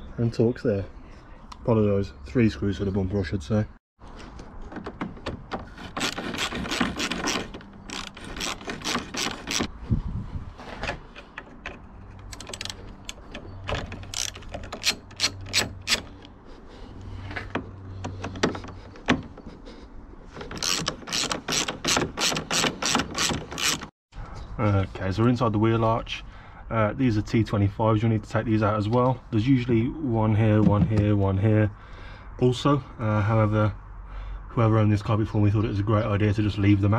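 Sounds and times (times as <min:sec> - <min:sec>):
socket ratchet clicking: 0:12.2 - 0:16.3, 0:20.5 - 0:23.9.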